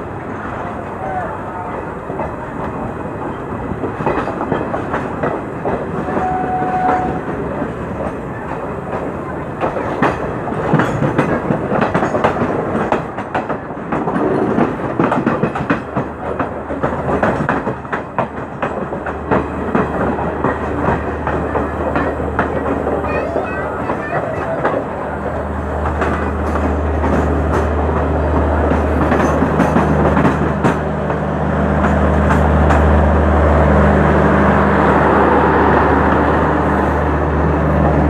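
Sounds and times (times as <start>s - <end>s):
train wheels clattering over rail joints: 2.0s - 31.2s.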